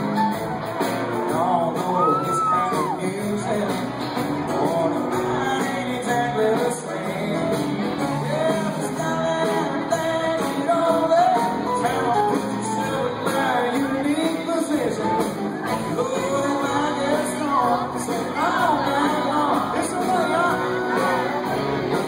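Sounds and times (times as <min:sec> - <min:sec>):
live country band playing: 0:00.0 - 0:22.0
male lead vocal: 0:01.1 - 0:22.0.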